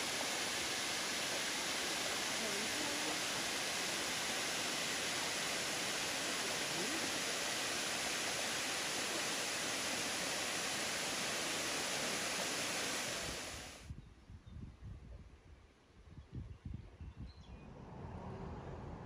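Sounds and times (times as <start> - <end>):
waterfall rushing: 0.0 - 13.8.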